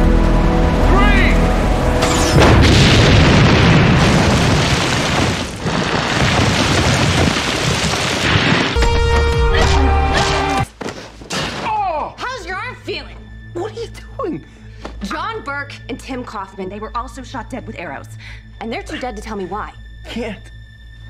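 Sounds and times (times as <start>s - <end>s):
dramatic score music: 0.0s - 3.6s, 8.8s - 10.9s, 12.0s - 21.0s
dense rumbling noise: 0.0s - 8.8s
explosion blast: 1.9s - 10.6s.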